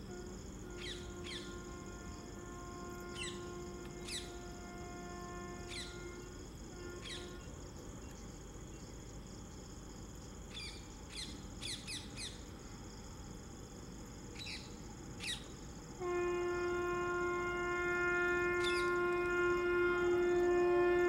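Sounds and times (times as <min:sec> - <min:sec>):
locomotive air horn blast: 0:00.0 - 0:07.6, 0:16.0 - 0:21.0
faint high whine: 0:00.0 - 0:21.0.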